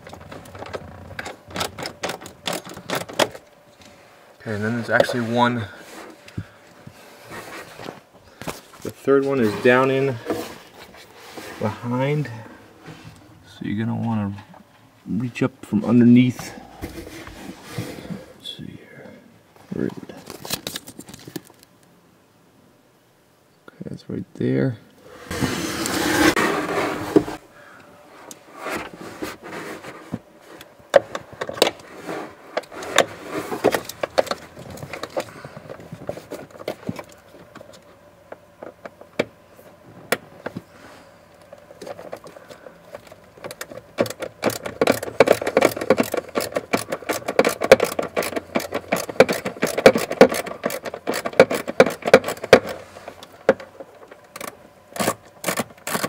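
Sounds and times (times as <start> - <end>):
ratchet clicking: 44.0 - 52.8.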